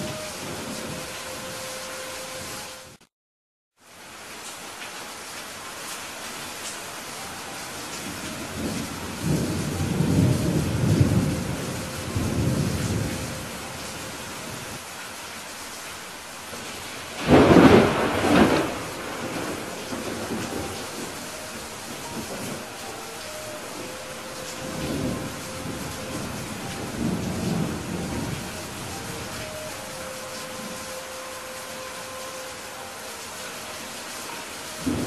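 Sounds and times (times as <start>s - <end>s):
steady rain: 0.0s - 3.0s, 3.8s - 35.0s
thunder rumbling: 8.0s - 14.8s, 16.5s - 31.1s, 34.8s - 35.0s
loud thunderclap: 17.2s - 21.1s.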